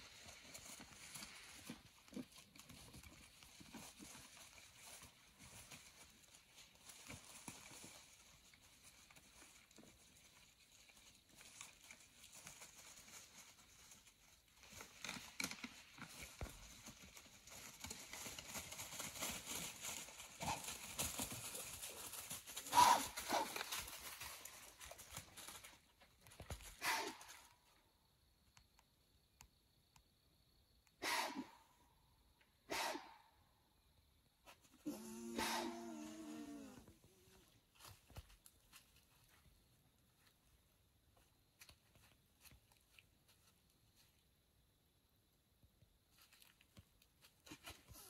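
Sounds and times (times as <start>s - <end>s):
hooves crunching dry leaves: 0.0s - 27.4s, 34.8s - 44.0s, 46.1s - 48.0s.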